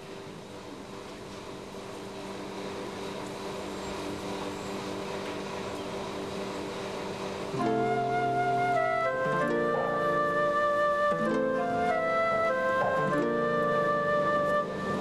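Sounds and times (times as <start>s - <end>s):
low drone: 2.5s - 15.0s
flute melody: 7.5s - 15.0s.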